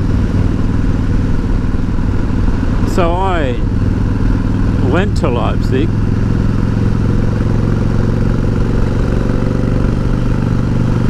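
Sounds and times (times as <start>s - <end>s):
motorcycle engine cruising: 0.0s - 11.0s.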